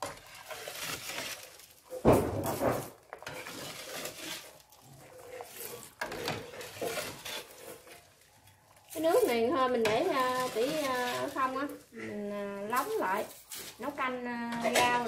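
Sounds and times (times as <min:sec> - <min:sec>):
spoon and strainer scraping metal pot: 0:00.0 - 0:02.0, 0:02.8 - 0:12.0, 0:12.6 - 0:15.0.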